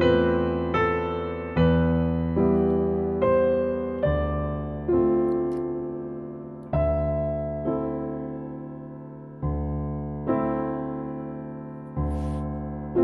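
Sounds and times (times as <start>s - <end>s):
slow solo piano: 0.0s - 13.0s.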